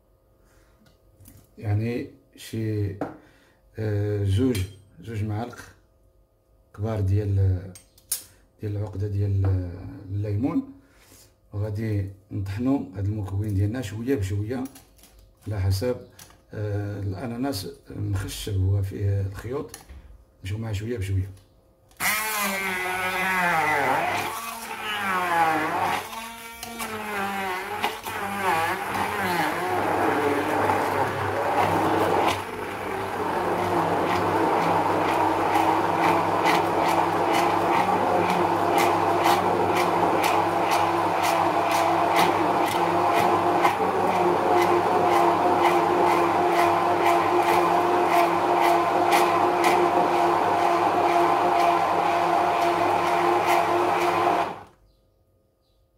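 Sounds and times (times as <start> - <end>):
stick blender whining: 22.0 - 54.7.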